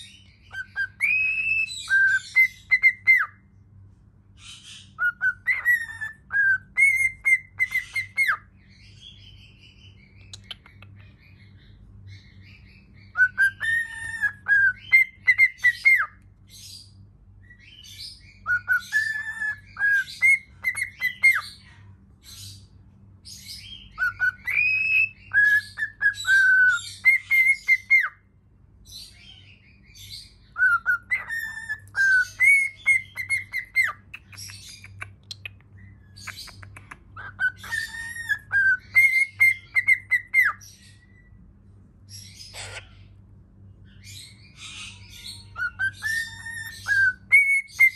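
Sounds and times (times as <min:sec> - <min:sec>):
cockatiel whistling: 0:00.5 - 0:03.4, 0:04.6 - 0:08.4, 0:13.1 - 0:16.2, 0:18.4 - 0:21.4, 0:23.9 - 0:28.2, 0:30.6 - 0:35.4, 0:37.2 - 0:40.8, 0:45.3 - 0:47.9
scratchy bird chatter: 0:31.2 - 0:38.6.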